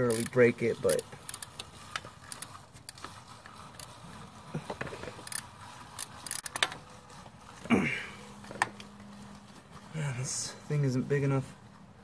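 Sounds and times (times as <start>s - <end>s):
ratchet and socket clicking: 0.0s - 3.0s, 5.0s - 6.8s.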